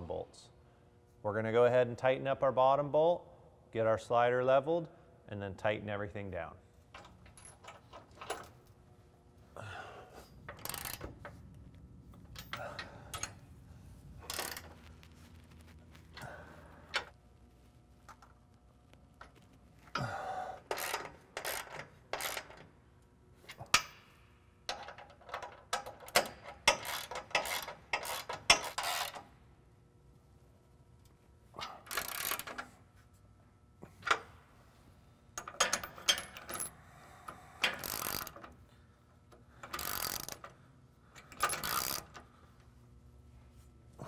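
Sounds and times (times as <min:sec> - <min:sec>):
wrench clicking and rattling: 0:10.5 - 0:11.4, 0:14.2 - 0:14.8, 0:19.9 - 0:22.7, 0:23.5 - 0:29.3, 0:31.7 - 0:32.7, 0:35.4 - 0:36.7, 0:37.3 - 0:38.6, 0:39.3 - 0:42.3.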